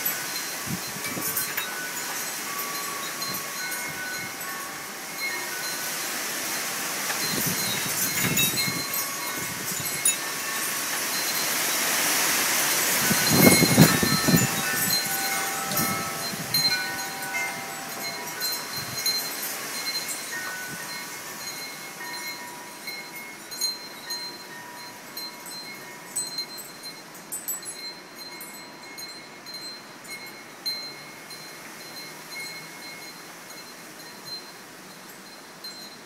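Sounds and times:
gusty wind: 0.0 - 24.1
wind chimes ringing: 0.0 - 36.0.

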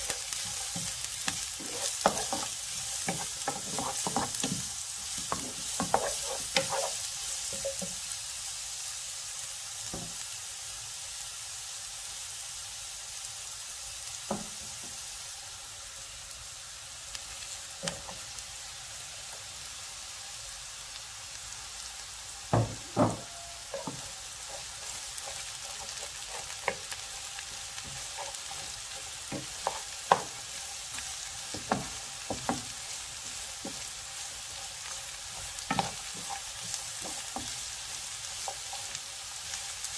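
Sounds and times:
wooden spatula scraping a pan: 0.0 - 8.0, 22.6 - 39.7
vegetables sizzling in oil: 0.0 - 39.9.

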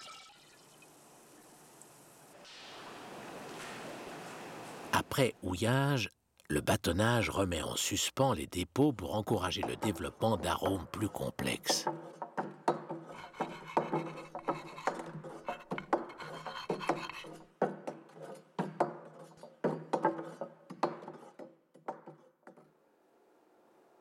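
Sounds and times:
chalk scratching on a blackboard: 11.8 - 21.5.

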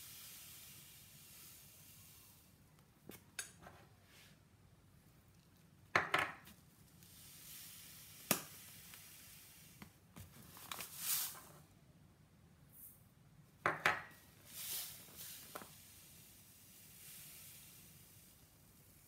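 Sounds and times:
crockery knocking on worktop: 13.6 - 14.1.

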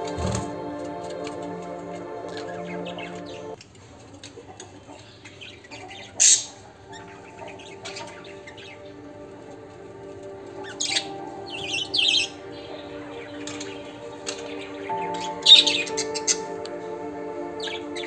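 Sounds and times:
soft background music: 0.0 - 3.6, 6.0 - 18.0
budgerigars chirping and chattering: 5.0 - 9.2.

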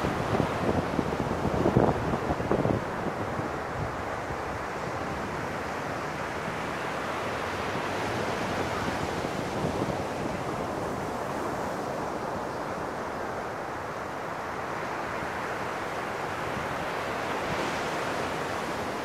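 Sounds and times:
wind buffeting microphone: 0.0 - 6.6, 7.7 - 12.6
ocean surf breaking on sand: 0.0 - 19.0.

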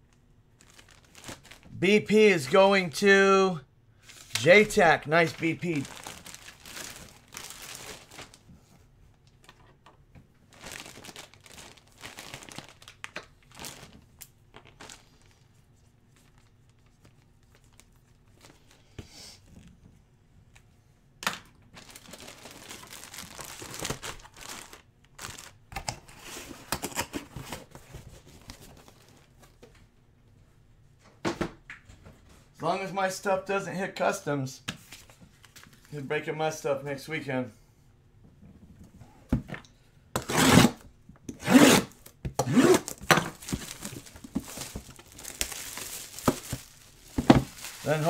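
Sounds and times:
plastic wrapping crinkling: 0.5 - 1.7, 5.2 - 8.5, 10.4 - 18.8, 21.7 - 25.7, 42.8 - 48.0.

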